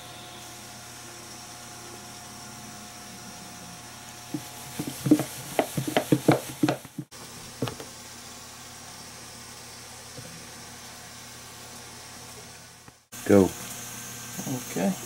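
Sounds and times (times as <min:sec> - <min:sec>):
chicken pieces thudding in plastic tub: 0:04.3 - 0:07.8.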